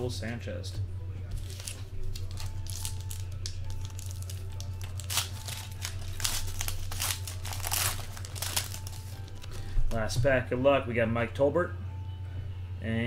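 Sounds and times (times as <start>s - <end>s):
plastic wrapper crinkling and tearing: 1.4s - 9.6s.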